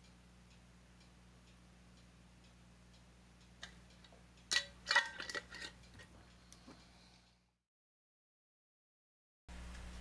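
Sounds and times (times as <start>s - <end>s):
faint ticking: 0.0s - 4.5s
metal lid twisted onto glass jar: 4.5s - 5.8s.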